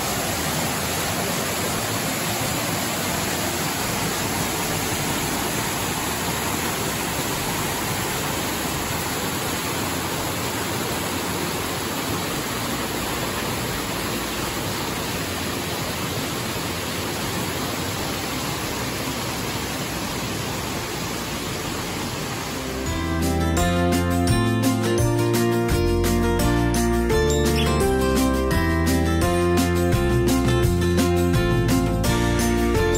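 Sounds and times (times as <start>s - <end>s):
mountain creek rushing water: 0.0s - 24.9s.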